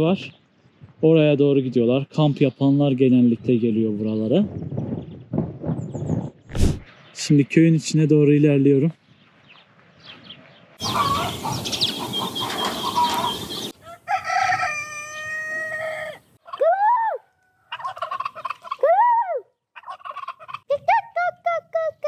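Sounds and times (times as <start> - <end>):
rooster crowing: 10.8 - 11.6, 12.8 - 16.2
turkeys gobbling: 10.8 - 16.7, 17.5 - 18.9, 19.8 - 20.7.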